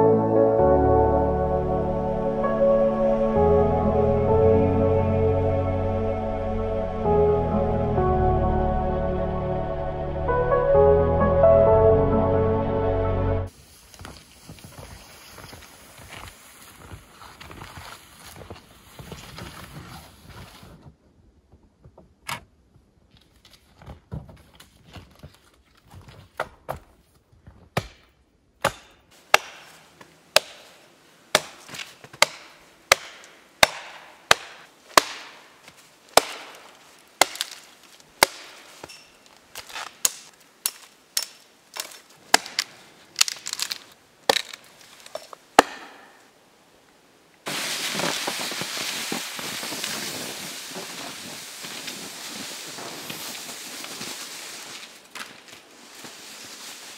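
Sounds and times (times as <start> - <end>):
hatchet chopping log: 27.8 - 29.8, 30.4 - 30.7, 31.3 - 35.4, 36.1 - 37.6, 38.2 - 39.0, 39.8 - 43.7, 45.6 - 46.1
wood snapping: 28.6 - 29.8, 30.4 - 30.7, 31.3 - 46.0.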